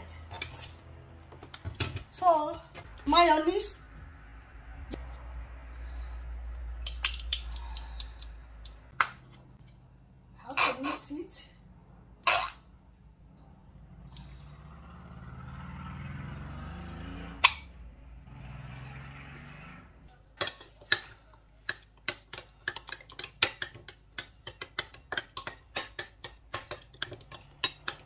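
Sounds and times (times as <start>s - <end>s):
metal spoon clinking against bowl: 22.8s - 28.0s.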